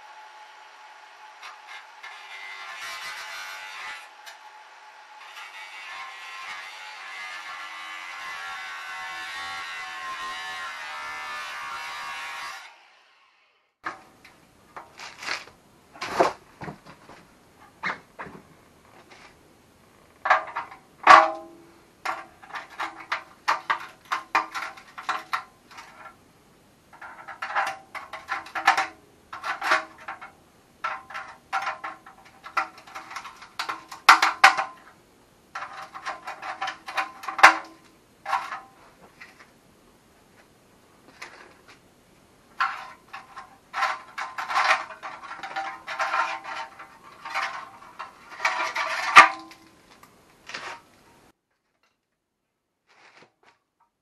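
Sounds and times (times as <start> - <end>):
screwdriver scraping metal: 27.0 - 34.7, 35.6 - 38.7, 42.6 - 49.6.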